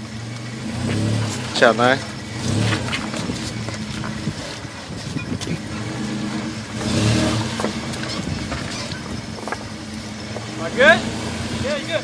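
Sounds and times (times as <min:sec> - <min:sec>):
suv engine crawling and revving: 0:00.0 - 0:12.0.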